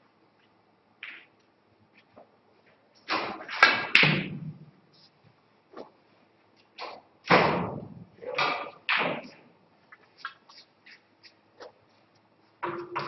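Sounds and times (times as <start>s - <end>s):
snooker balls clicking: 1.0s - 2.4s, 8.3s - 13.0s.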